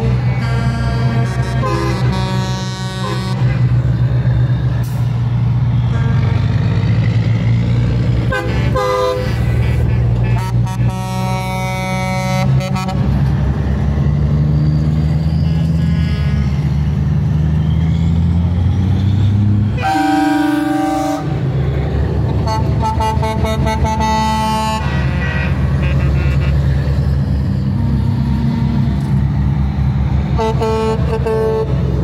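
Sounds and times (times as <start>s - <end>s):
truck air horn blasts: 0.0s - 3.8s, 5.8s - 6.6s, 8.2s - 13.2s, 15.4s - 16.8s, 19.8s - 21.4s, 22.4s - 27.1s, 30.4s - 31.8s
diesel trucks passing: 0.0s - 32.0s.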